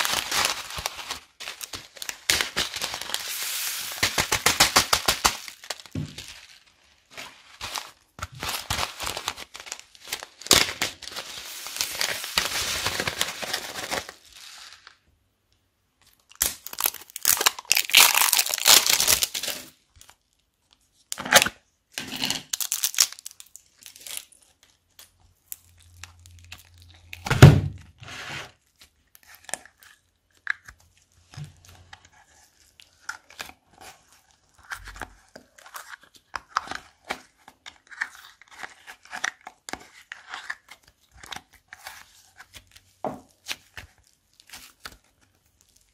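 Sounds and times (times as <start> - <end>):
plastic bag crinkling: 0.0 - 15.0, 16.6 - 19.8, 22.4 - 24.8
foam beads pouring into plastic bowl: 2.6 - 5.5.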